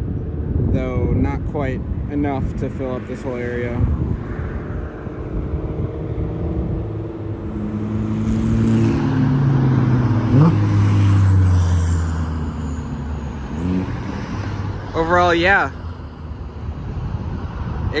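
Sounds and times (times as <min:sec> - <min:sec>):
vehicle engine passing by: 0:02.8 - 0:15.9.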